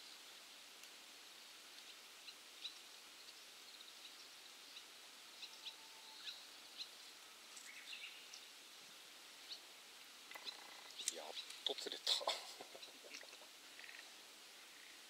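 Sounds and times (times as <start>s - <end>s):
distant bird chirps: 9.4s - 15.0s.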